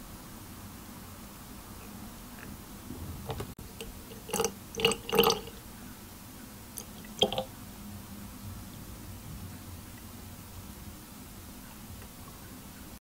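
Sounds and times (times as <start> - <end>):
milk splashing into bottles: 3.8 - 5.6, 6.8 - 7.5.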